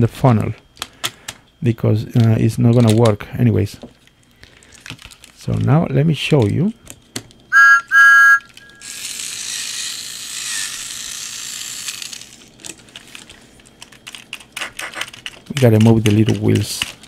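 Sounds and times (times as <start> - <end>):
electronic toy whistle toots: 7.5 - 9.0.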